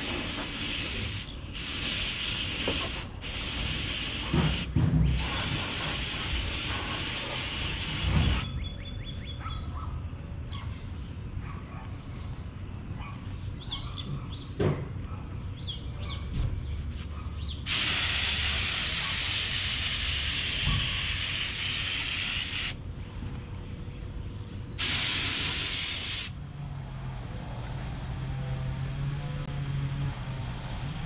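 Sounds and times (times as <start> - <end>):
air spray gun hissing: 0.0 - 8.5, 17.7 - 22.8, 24.8 - 26.3.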